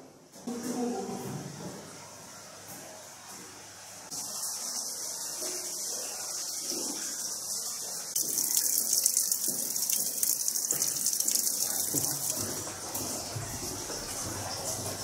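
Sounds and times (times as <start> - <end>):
water trickling down rock wall: 8.1 - 15.0.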